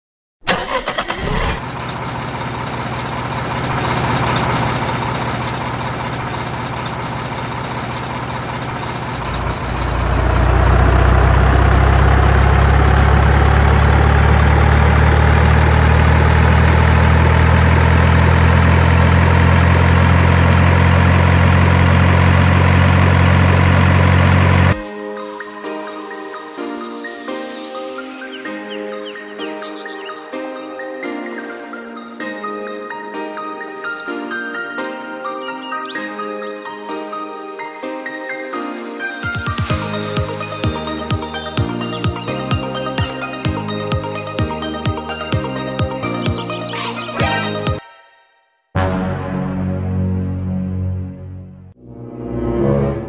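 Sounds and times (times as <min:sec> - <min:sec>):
truck engine running: 0:00.5 - 0:24.8, 0:39.6 - 0:46.8.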